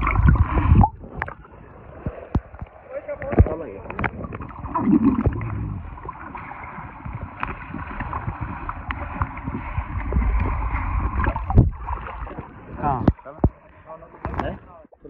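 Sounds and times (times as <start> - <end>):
bubbles popping: 0.0 - 1.4, 3.4 - 6.1
water splash: 0.0 - 13.4
muffled underwater water rumble: 0.0 - 15.0.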